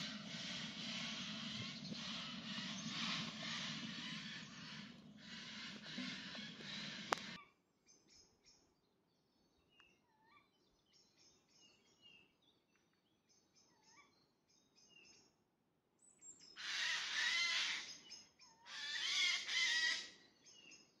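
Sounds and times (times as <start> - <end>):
owl chick raspy hissing calls: 0.0 - 7.4, 16.6 - 17.9, 18.6 - 20.2
small birds chirping: 0.0 - 15.4.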